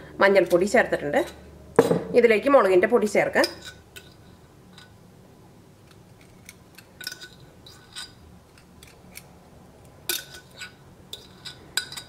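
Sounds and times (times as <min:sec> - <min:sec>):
teaspoon clinking on metal bowl: 0:03.4 - 0:05.0, 0:10.1 - 0:12.0.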